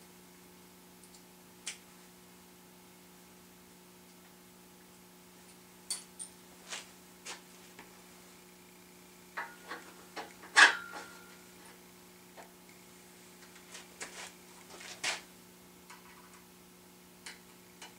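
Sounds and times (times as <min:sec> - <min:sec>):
steady low hum: 0:00.0 - 0:17.9
metal tools clicking and tapping: 0:05.9 - 0:06.4.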